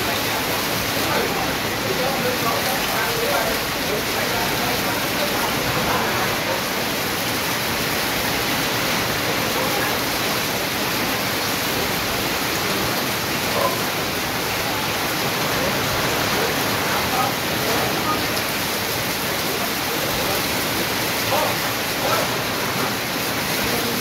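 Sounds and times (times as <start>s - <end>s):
rain on metal roof and foliage: 0.0s - 24.0s
runoff pouring off roof: 0.0s - 24.0s.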